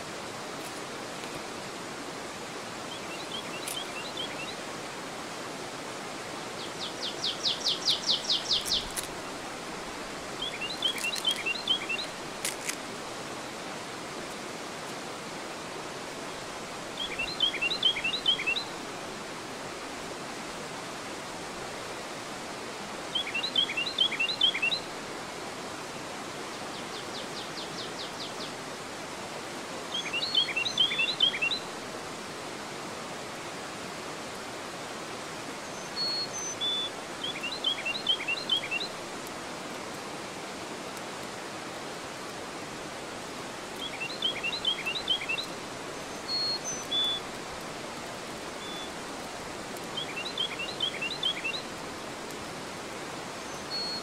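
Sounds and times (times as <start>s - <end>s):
water rushing over a dam: 0.0s - 54.0s
songbird singing: 2.9s - 4.6s, 6.4s - 9.4s, 10.3s - 12.2s, 17.0s - 18.8s, 23.1s - 24.9s, 29.9s - 31.7s, 35.6s - 39.0s, 43.7s - 51.8s, 53.3s - 54.0s
high bird chirps: 46.2s - 47.2s.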